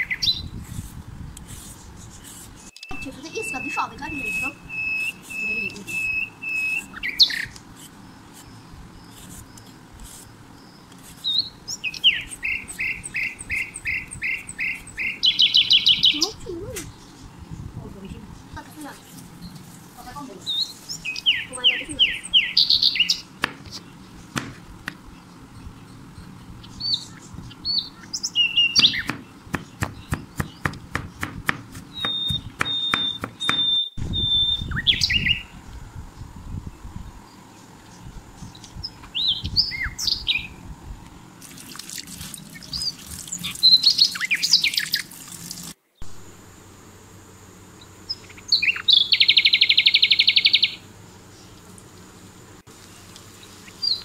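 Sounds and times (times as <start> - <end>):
small birds chirping: 0.0 - 40.7, 41.9 - 46.2, 47.6 - 54.0
dense buzzy bird call: 1.5 - 16.4, 18.4 - 24.5, 25.1 - 35.6, 46.0 - 54.0
sharp taps: 23.4 - 23.8, 28.8 - 33.7.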